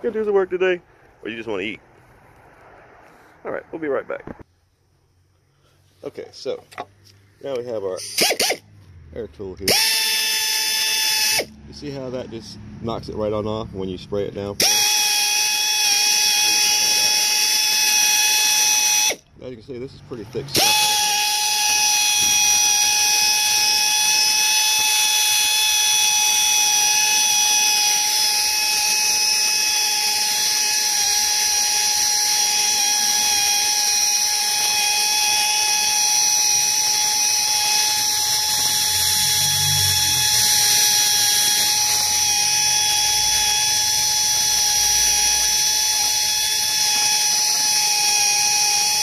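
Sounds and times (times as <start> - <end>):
air tool wire brush whine: 7.4 - 8.7, 9.6 - 12.0, 14.6 - 19.2, 20.4 - 49.0.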